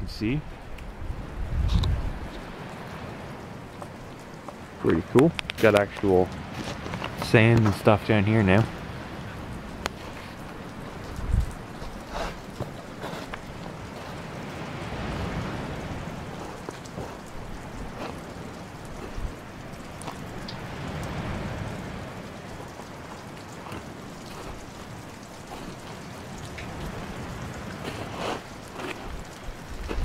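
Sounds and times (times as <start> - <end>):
footsteps crunching on gravel: 5.4 - 7.9, 9.9 - 14.3.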